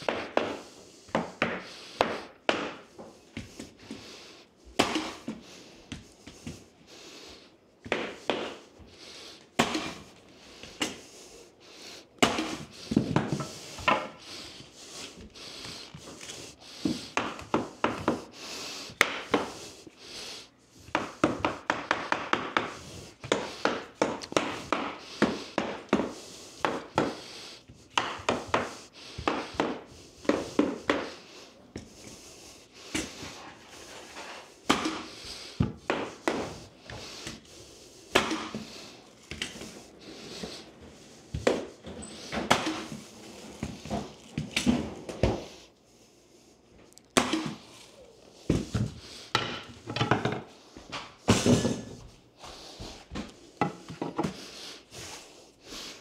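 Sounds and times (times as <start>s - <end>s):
mallet striking flooring nailer: 47.2s - 47.6s.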